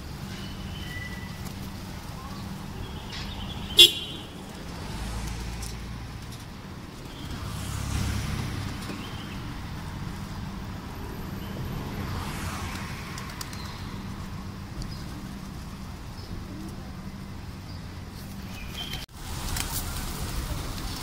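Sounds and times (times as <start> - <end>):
low hum of road traffic: 0.0 - 21.0
pigeon wings fluttering: 12.6 - 13.9, 18.5 - 21.0.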